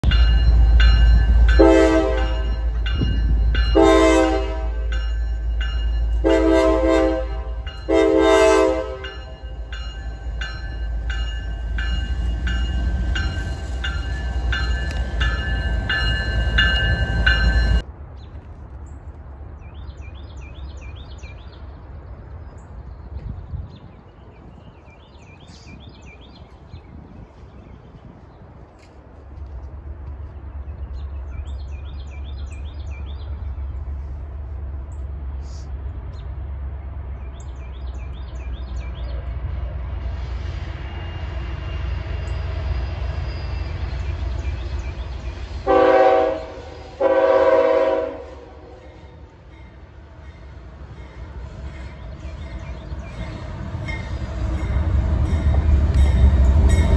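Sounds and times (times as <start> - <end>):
locomotive engines rumbling: 0.0 - 56.9
train air horn blasts: 1.6 - 2.8, 3.7 - 4.9, 6.2 - 9.4, 45.6 - 49.3.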